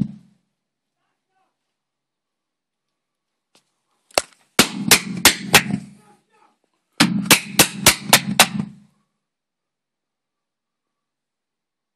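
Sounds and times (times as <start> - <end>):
bursts of loud rapid bangs: 4.6 - 6.0, 7.0 - 8.8.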